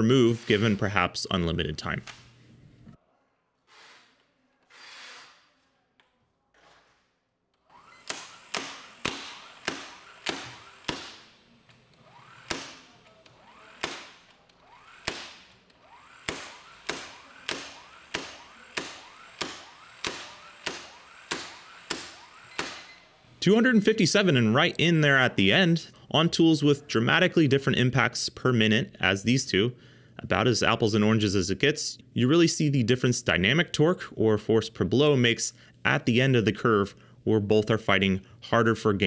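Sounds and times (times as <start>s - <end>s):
impact wrench sharp blows: 7.7s - 23.2s.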